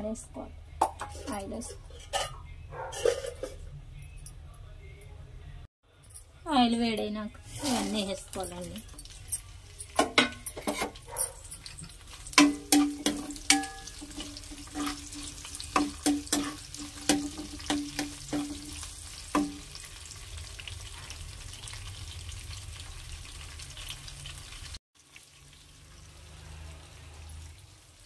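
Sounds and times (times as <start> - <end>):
spatula scraping a pan: 1.0 - 3.6, 7.4 - 8.1, 10.4 - 11.0, 11.6 - 19.2
spices sizzling in hot oil: 7.4 - 28.0.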